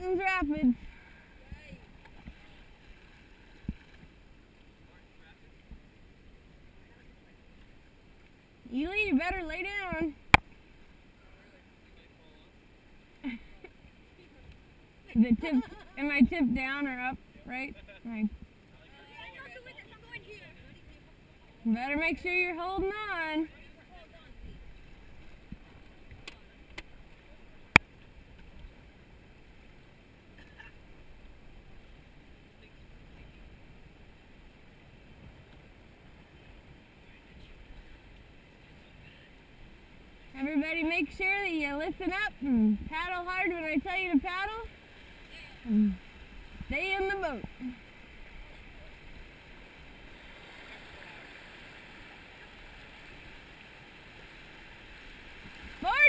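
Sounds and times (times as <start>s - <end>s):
river water rushing: 43.6s - 56.0s.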